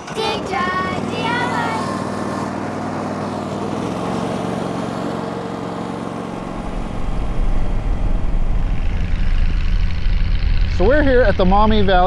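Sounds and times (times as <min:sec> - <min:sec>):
garden tractor engine running: 0:00.0 - 0:12.0
car driving rumble from inside: 0:06.3 - 0:12.0.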